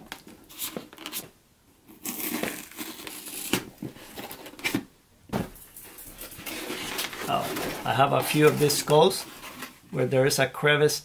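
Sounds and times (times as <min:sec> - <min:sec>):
foam crinkling and tearing: 0:01.9 - 0:04.6.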